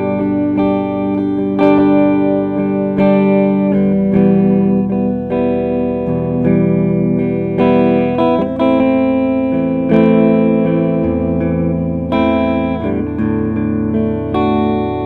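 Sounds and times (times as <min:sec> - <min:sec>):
electric guitar through amp: 0:00.0 - 0:15.0.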